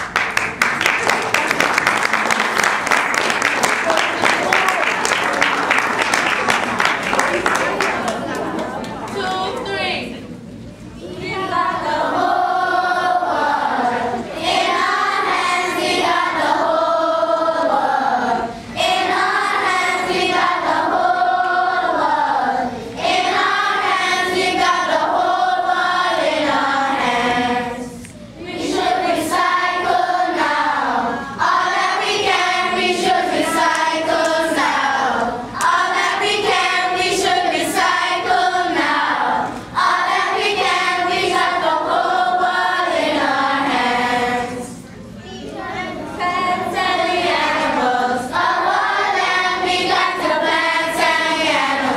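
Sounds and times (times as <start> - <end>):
children's choir singing: 11.0 - 51.9.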